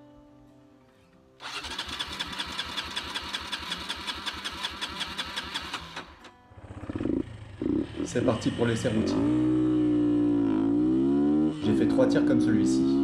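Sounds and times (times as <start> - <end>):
engine cranking on starter: 1.4 - 7.1.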